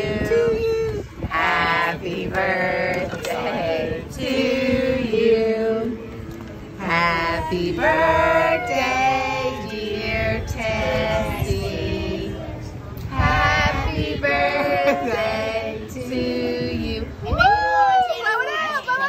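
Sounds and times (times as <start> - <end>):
people singing: 0.0 - 6.0, 6.8 - 17.2.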